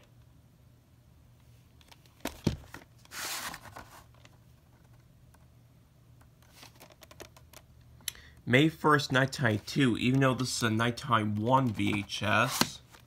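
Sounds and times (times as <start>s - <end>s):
cassette sliding from cardboard sleeve: 3.0s - 4.0s.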